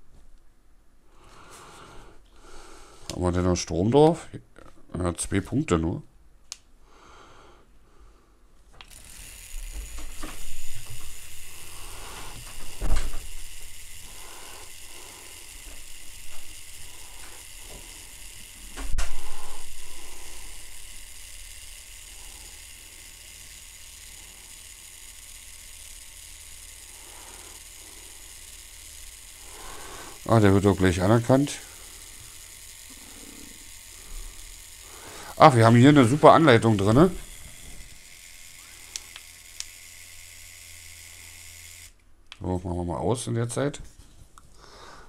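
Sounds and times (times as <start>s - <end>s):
gimbal motors hissing: 8.8s - 42.0s.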